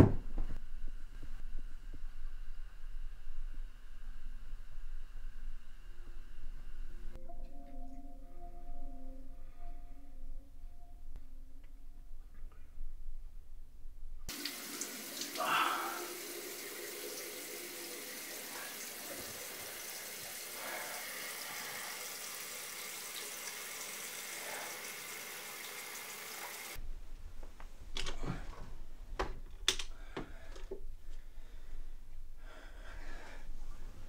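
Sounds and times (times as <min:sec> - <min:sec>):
tap water running: 0:14.3 - 0:26.8.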